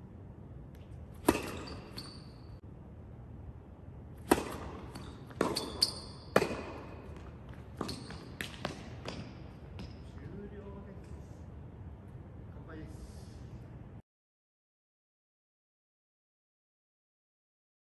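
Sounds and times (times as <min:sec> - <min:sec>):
racket hitting tennis ball: 0:00.8 - 0:02.6, 0:04.1 - 0:10.0
tennis ball bouncing: 0:00.8 - 0:02.6, 0:04.2 - 0:10.1
shoe squeaks: 0:01.2 - 0:02.6, 0:04.8 - 0:06.7, 0:07.5 - 0:10.2.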